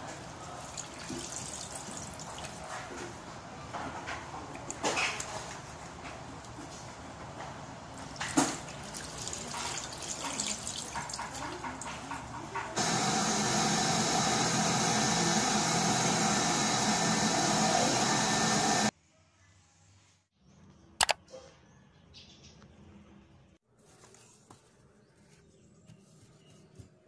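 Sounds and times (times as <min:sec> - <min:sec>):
water splashing at sink: 0:00.5 - 0:02.9, 0:07.9 - 0:12.7
electric hand dryer blowing: 0:12.8 - 0:18.9.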